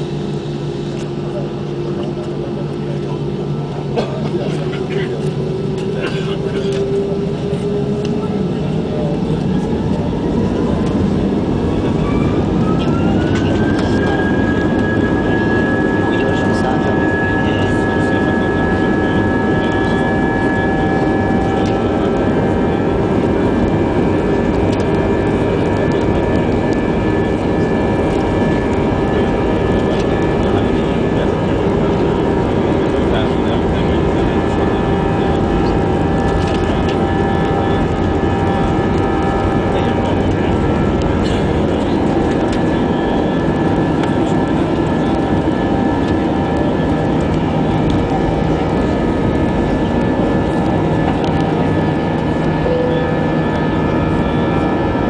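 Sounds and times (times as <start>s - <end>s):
jet engine cabin hum: 0.0s - 55.0s.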